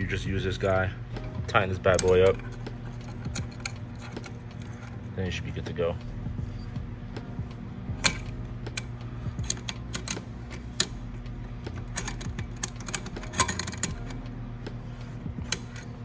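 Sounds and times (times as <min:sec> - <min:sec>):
steady low hum: 0:00.0 - 0:16.0
wrench clicking on metal fitting: 0:01.2 - 0:04.8, 0:08.0 - 0:11.0, 0:11.7 - 0:14.3, 0:15.4 - 0:16.0.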